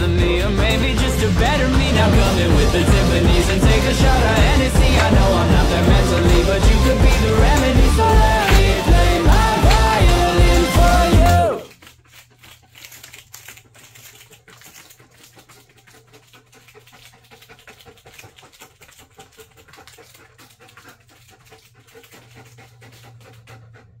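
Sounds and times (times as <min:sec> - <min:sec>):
dog panting: 0:00.0 - 0:24.0
dog claws clicking on plastic tiles: 0:01.8 - 0:23.5.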